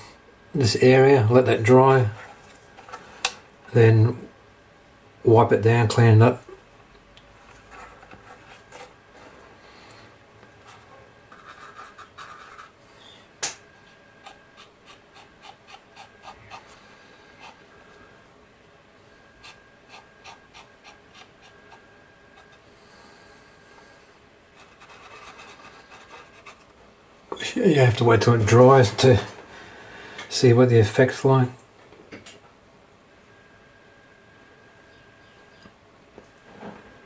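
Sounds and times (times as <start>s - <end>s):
cotton bud rubbing plastic: 19.4s - 21.8s.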